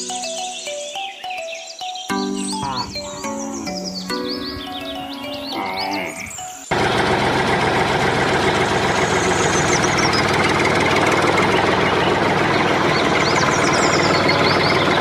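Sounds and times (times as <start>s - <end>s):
tractor engine running: 6.6s - 15.0s.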